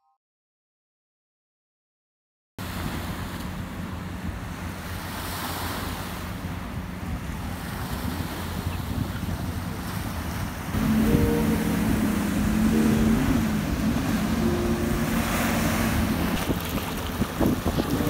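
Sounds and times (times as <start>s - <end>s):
boat engine droning: 2.6s - 18.0s
water washing past boat: 2.6s - 18.0s
wind buffeting microphone: 6.2s - 18.0s.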